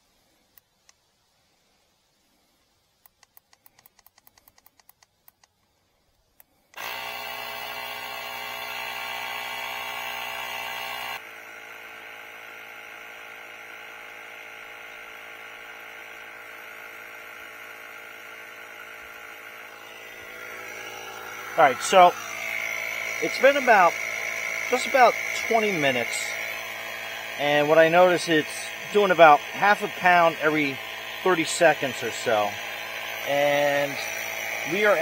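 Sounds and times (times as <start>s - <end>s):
faint clicks: 3.0s - 6.8s
electric compressor running: 6.4s - 35.0s.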